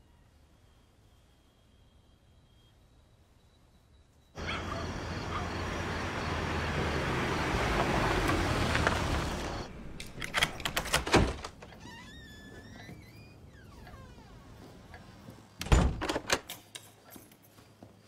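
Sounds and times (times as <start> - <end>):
car engine and tyre noise: 4.4 - 10.9.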